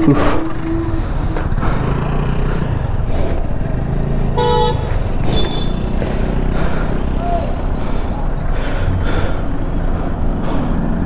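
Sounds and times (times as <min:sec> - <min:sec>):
motorcycle engine idling: 0:00.0 - 0:11.0
vehicle horn toot: 0:04.3 - 0:05.9.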